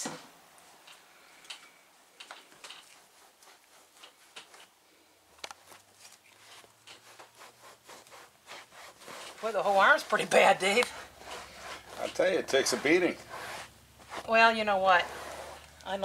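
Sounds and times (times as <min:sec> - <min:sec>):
cloth wiping vinyl: 0:06.4 - 0:16.0.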